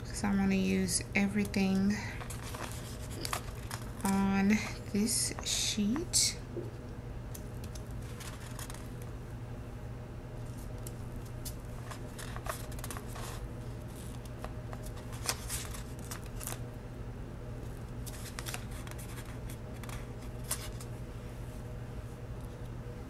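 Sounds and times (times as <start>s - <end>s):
steady low hum: 0.0s - 23.0s
stickers peeling paper rustles: 0.8s - 6.3s, 7.3s - 9.1s, 10.4s - 16.6s, 17.6s - 20.9s.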